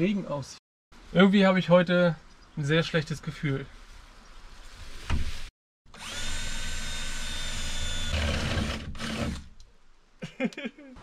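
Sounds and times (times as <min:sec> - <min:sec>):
cordless drill drilling sheet metal: 0:05.9 - 0:09.5.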